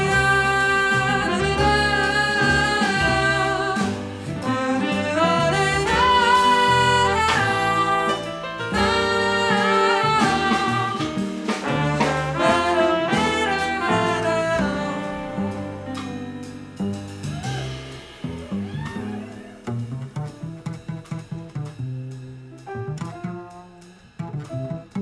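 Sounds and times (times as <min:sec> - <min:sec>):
trumpet and trombone playing: 0:00.0 - 0:19.6
double bass: 0:00.0 - 0:25.0
drums: 0:00.0 - 0:25.0.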